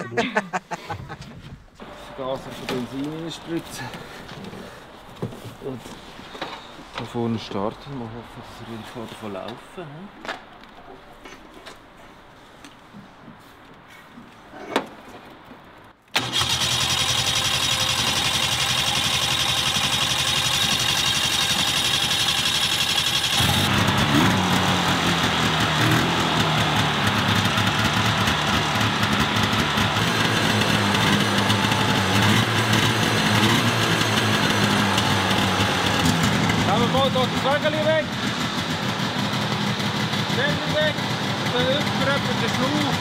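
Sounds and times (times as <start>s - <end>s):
snowmobile engine running: 16.2s - 43.0s.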